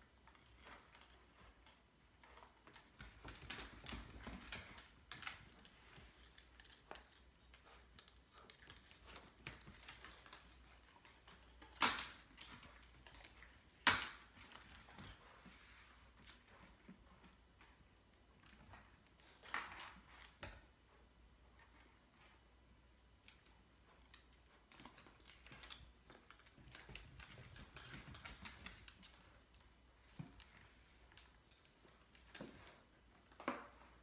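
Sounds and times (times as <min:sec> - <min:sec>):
dog claws clicking on wooden floor: 0:00.3 - 0:15.3, 0:23.2 - 0:33.8.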